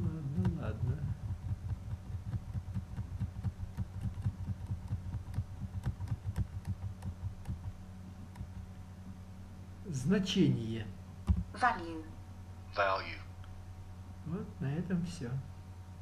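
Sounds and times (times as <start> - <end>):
low electrical hum: 0.0 - 16.0
computer mouse clicks: 8.3 - 8.6.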